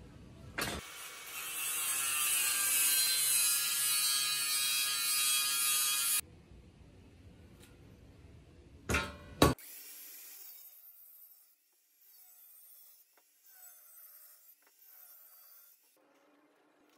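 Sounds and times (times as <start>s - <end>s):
angle grinder cutting steel: 0.8s - 6.2s, 9.6s - 16.5s.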